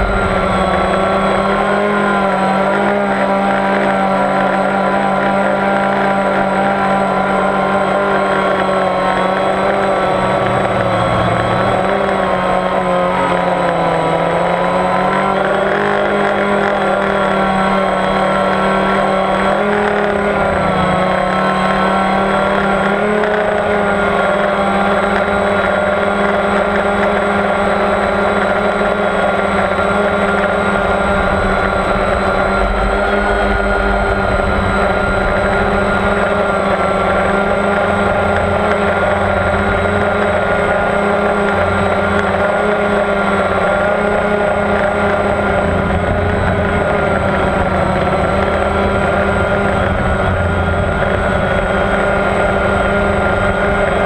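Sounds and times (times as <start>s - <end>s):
wind rumble on microphone: 0.0s - 5.4s, 26.8s - 54.0s
drone motors and propellers humming: 0.0s - 54.0s.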